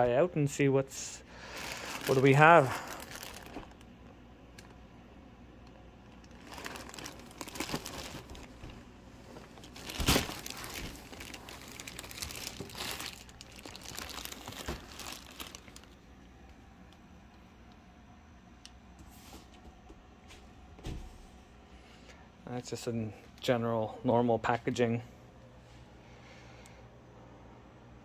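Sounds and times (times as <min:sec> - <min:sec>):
plastic wrapping crinkling: 0:01.4 - 0:03.9, 0:06.0 - 0:16.0.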